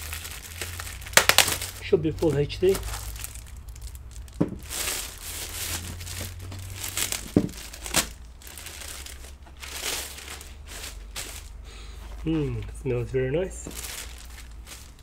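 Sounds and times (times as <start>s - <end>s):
plastic bag crinkling and rustling: 0.0s - 15.0s.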